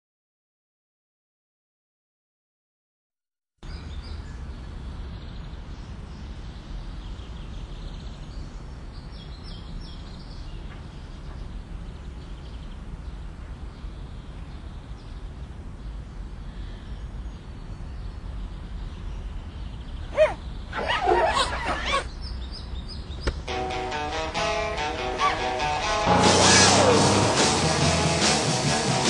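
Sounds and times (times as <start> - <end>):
birds chirping: 3.7 - 29.0.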